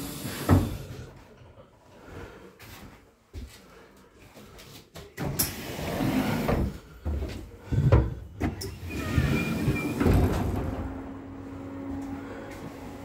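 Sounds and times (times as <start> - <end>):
footsteps and clatter: 2.6 - 5.2, 6.7 - 8.6
sliding door opening: 5.3 - 6.8, 8.5 - 12.0.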